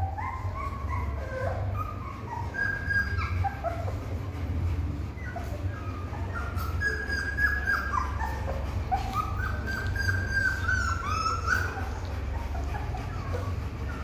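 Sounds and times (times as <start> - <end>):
puppies whining and squeaking: 0.0 - 14.0
steady low hum: 0.0 - 14.0.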